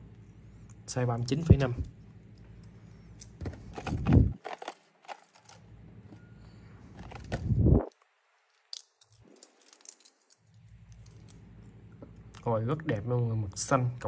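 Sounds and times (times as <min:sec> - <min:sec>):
handling bumps: 0:03.2 - 0:06.2
wristwatch clicks and clinks: 0:08.6 - 0:11.4.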